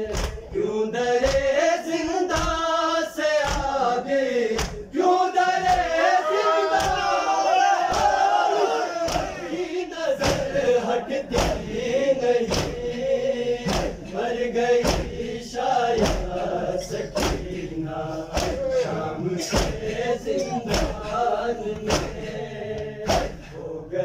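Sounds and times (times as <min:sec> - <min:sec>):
hand slaps on chests: 0:00.0 - 0:00.6, 0:01.2 - 0:01.6, 0:02.2 - 0:02.7, 0:03.4 - 0:03.9, 0:04.5 - 0:05.0, 0:05.6 - 0:06.0, 0:06.7 - 0:07.0, 0:07.9 - 0:08.2, 0:09.0 - 0:09.4, 0:10.2 - 0:10.6, 0:11.4 - 0:11.8, 0:12.4 - 0:12.9, 0:13.6 - 0:14.0, 0:14.8 - 0:15.2, 0:15.9 - 0:16.4, 0:17.2 - 0:17.6, 0:18.3 - 0:18.7, 0:19.5 - 0:20.0, 0:20.7 - 0:21.0, 0:21.8 - 0:23.4
men chanting in unison: 0:00.0 - 0:24.0.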